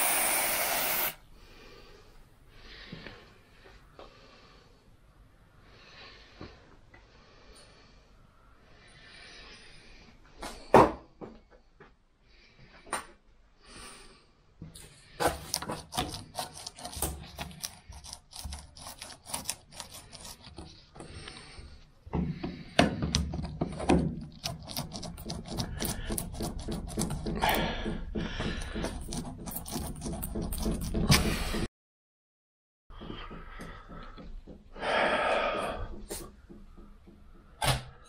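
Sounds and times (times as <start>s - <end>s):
rubber seal cracking and scraping: 15.2s - 20.9s.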